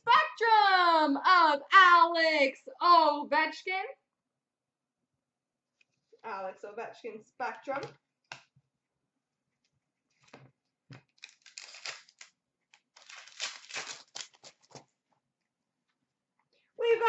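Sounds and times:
foil wrapper tearing and crinkling: 0:11.1 - 0:14.8.

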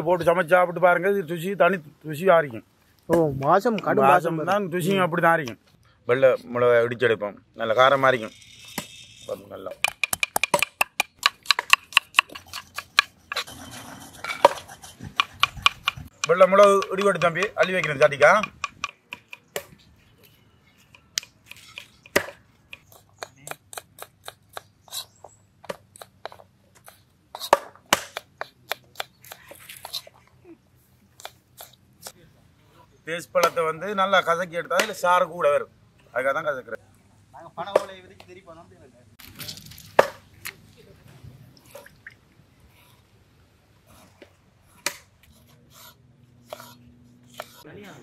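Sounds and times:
utensils knocking and clicking: 0:09.7 - 0:13.6, 0:14.2 - 0:19.8.

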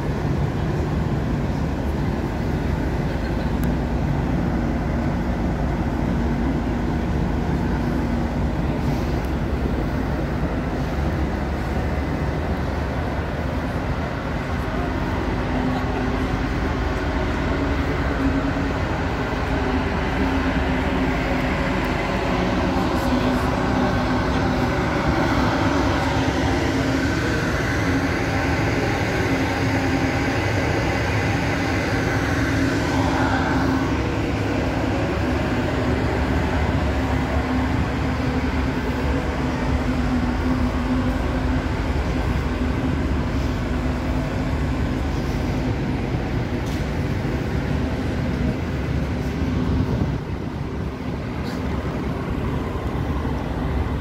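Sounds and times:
ventilation fans and machinery humming: 0:00.0 - 0:54.0.

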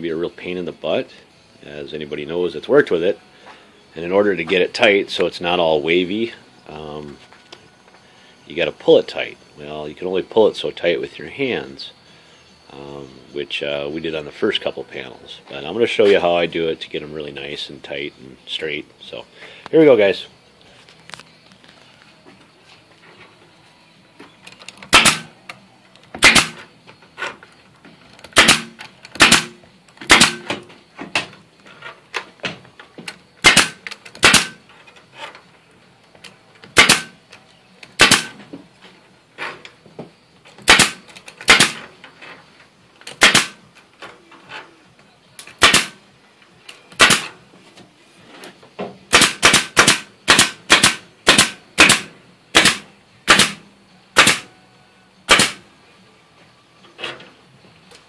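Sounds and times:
pneumatic staple gun firing: 0:24.9 - 0:25.3, 0:26.2 - 0:26.7, 0:28.3 - 0:30.6, 0:33.4 - 0:34.6, 0:36.7 - 0:37.2, 0:38.0 - 0:38.4, 0:40.6 - 0:41.9, 0:43.1 - 0:43.6, 0:45.5 - 0:46.0, 0:46.9 - 0:47.3, 0:49.1 - 0:53.6, 0:54.2 - 0:54.5, 0:55.3 - 0:55.6.

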